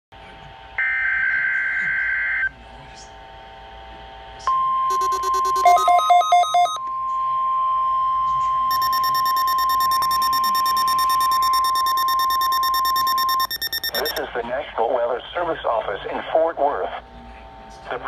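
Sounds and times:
loud steady alarm tone: 4.6 - 6.8, 8.7 - 14.2
shrill alarm tone: 4.8 - 6.8, 8.7 - 14.2
rapid electronic beeps: 4.9 - 6.8, 8.7 - 14.2.

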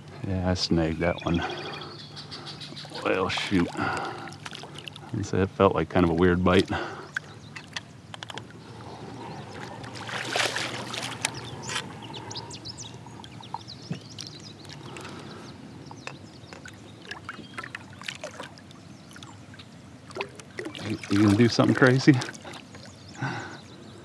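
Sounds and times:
fish thrashing water splashing: 2.9 - 5.1, 9.5 - 11.8, 16.6 - 19.3, 20.0 - 22.9
small knocks and clicks: 7.5 - 8.6.

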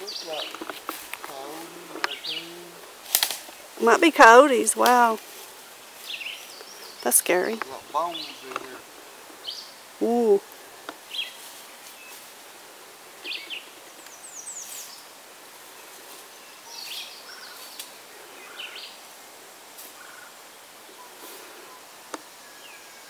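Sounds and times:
faint outdoor hiss: 0.0 - 23.0
bird chirps: 6.0 - 8.8.

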